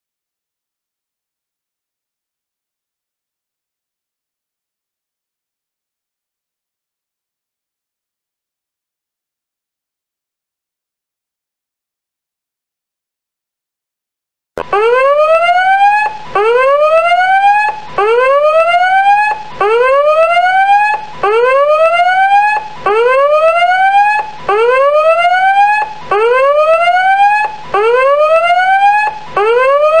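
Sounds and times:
electronic whooping alarm: 14.6s - 30.0s.

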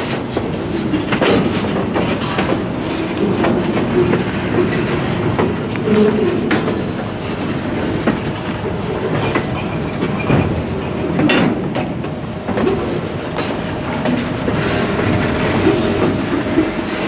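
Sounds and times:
metallic clanks over rail joints: 0.0s - 17.0s
train wheels rumbling on rails: 0.0s - 17.0s.

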